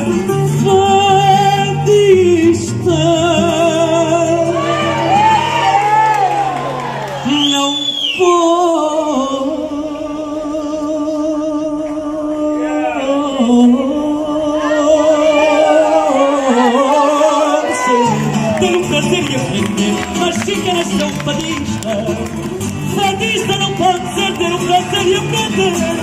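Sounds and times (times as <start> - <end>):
person singing with vibrato: 0.0 - 26.0
bass and rhythmic accompaniment: 18.0 - 26.0.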